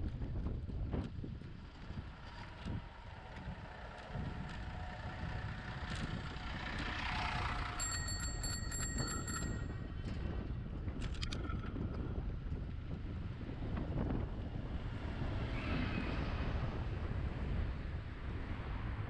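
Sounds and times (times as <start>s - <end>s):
low road rumble: 0.0s - 19.0s
wind rushing over microphone: 0.0s - 19.0s
bicycle bell ringing rapidly: 7.3s - 9.9s.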